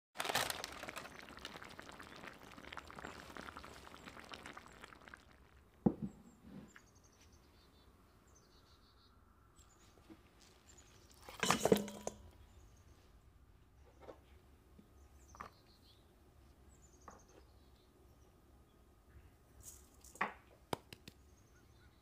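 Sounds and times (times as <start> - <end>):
aluminium foil crinkling: 0.2 - 5.3
meat clattering into metal bowl: 11.3 - 12.2.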